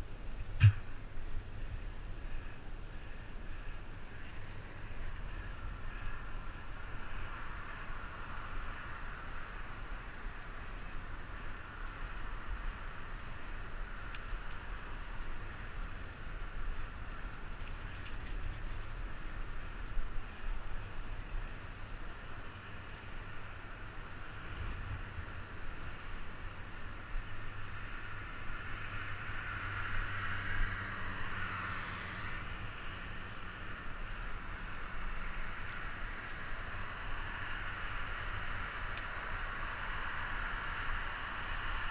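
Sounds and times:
traffic hiss: 0.0s - 41.9s
wind rush on microphone: 24.3s - 27.9s
vehicle passing: 27.8s - 38.1s.

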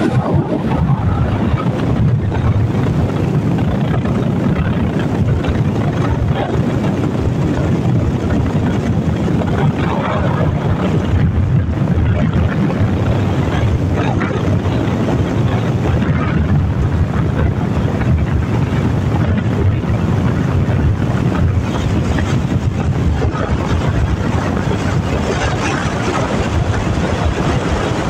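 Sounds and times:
motorcycle running: 0.0s - 28.0s
road noise: 0.0s - 28.0s
wind buffeting microphone: 0.0s - 28.0s.

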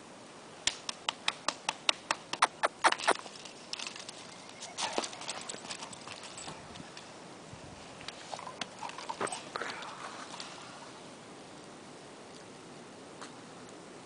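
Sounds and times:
dog scuffling on dirt path: 2.4s - 11.1s.

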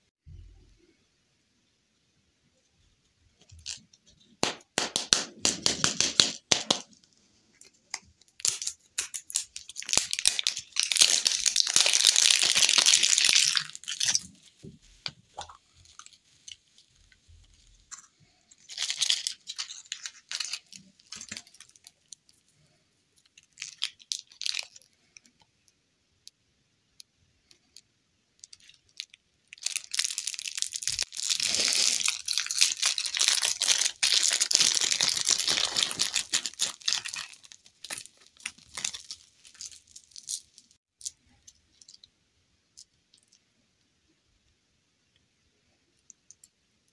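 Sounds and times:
plastic wrapping crinkling: 7.9s - 22.4s, 23.3s - 24.9s, 28.4s - 40.8s.

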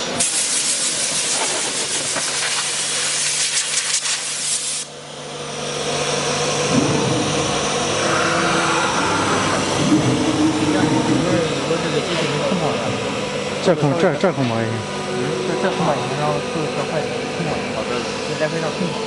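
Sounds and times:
machine hum: 4.8s - 19.0s.

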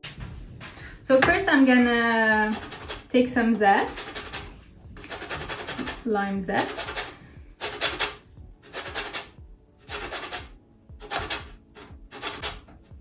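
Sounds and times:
lime rasping against grater: 3.8s - 12.7s.

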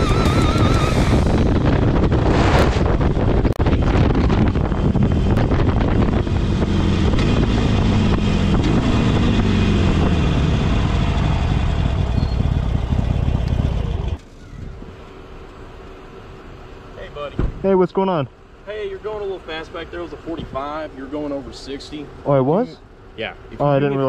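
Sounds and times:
motorcycle engine running: 0.0s - 14.8s
wind noise: 0.0s - 14.9s.

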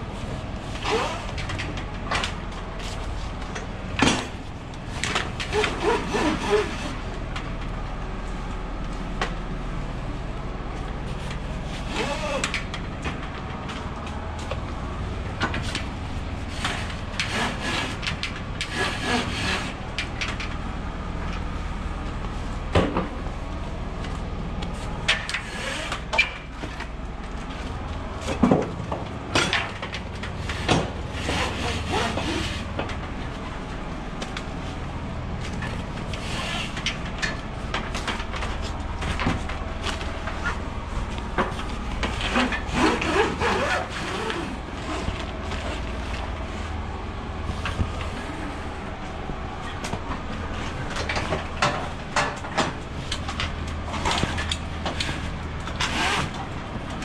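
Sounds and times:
steady low hum: 0.0s - 57.0s
straps and wooden slats scraping: 24.7s - 33.0s, 35.4s - 46.8s.

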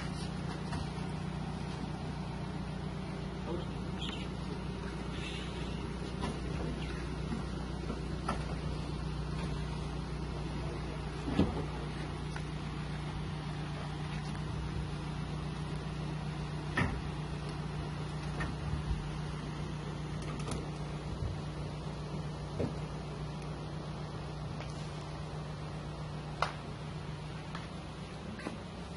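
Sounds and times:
vehicle engine idling: 0.0s - 28.9s.

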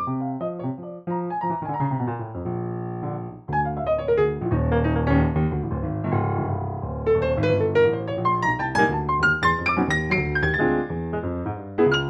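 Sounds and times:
low piano chords: 0.0s - 12.0s.

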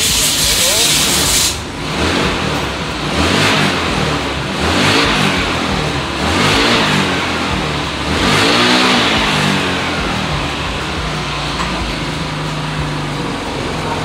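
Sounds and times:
motorbike engine revving: 0.0s - 14.0s.

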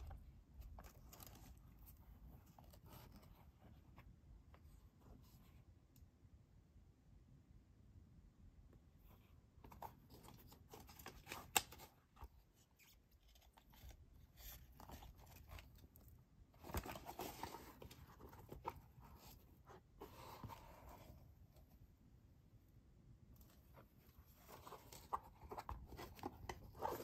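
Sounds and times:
rubbing and rustling: 9.6s - 21.8s, 23.4s - 27.0s.

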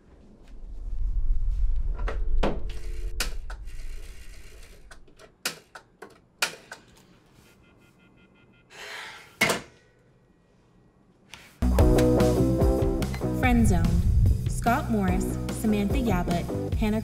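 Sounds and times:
rising rush: 0.5s - 4.9s, 13.4s - 14.7s
loud low rumble: 13.3s - 15.5s.

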